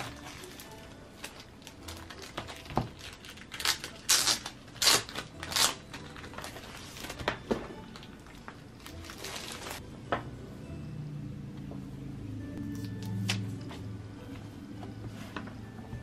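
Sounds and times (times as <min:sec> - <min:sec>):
plastic wrapping crinkling: 0:00.0 - 0:09.8.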